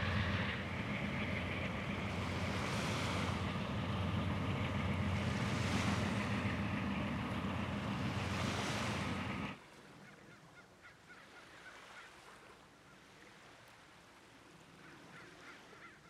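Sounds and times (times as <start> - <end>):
low hum: 0.0 - 9.6
train rumbling past: 0.0 - 9.6.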